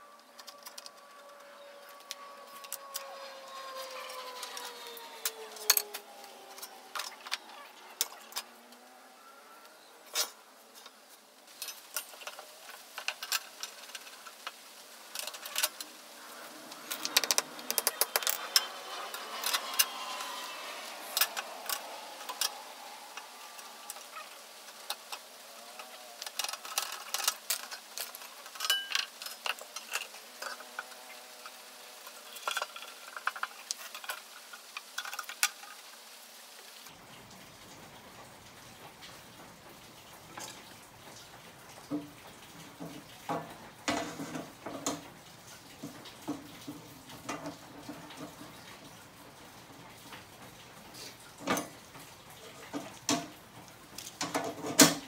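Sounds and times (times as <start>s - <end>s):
metal scraping: 11.5s - 35.9s.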